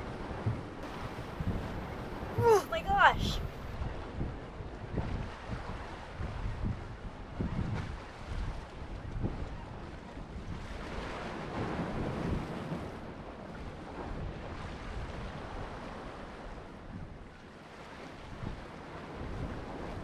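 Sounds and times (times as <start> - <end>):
wind buffeting microphone: 0.0 - 17.3, 18.3 - 20.0.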